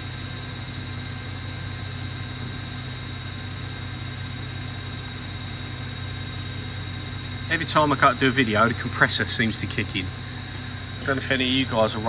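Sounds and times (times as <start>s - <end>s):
air compressor running: 5.9s - 12.0s.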